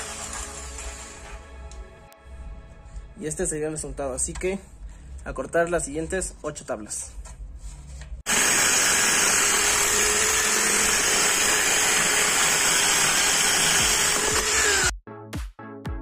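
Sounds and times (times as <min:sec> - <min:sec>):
electric drill sawing wood: 0:00.0 - 0:01.4, 0:08.3 - 0:14.9
electronic music with beat: 0:14.8 - 0:16.0.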